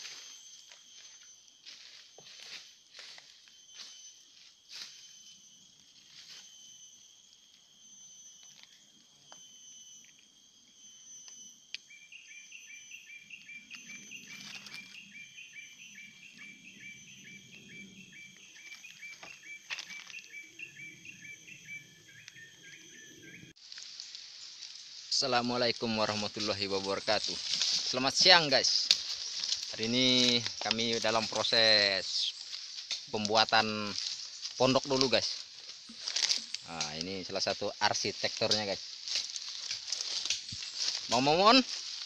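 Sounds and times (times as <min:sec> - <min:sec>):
insect short chirps: 0:00.0 - 0:42.0
insects chirring: 0:00.0 - 0:42.0.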